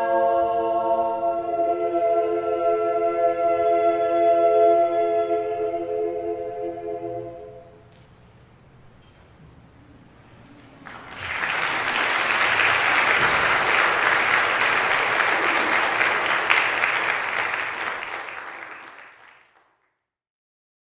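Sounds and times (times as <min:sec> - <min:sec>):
audience applauding: 0:10.6 - 0:19.8.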